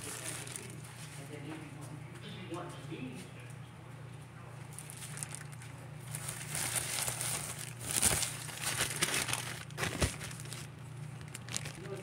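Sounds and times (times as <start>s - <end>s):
plastic bag crinkling: 0.0s - 0.8s, 4.7s - 12.0s.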